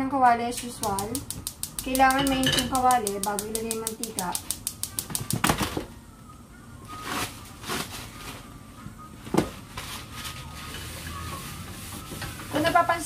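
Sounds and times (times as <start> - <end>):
kitchen items clattering: 1.9 - 3.3.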